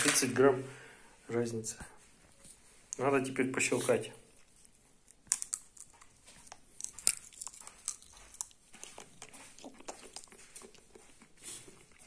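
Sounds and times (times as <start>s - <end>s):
sunflower seeds cracking and crunching: 5.1s - 10.8s.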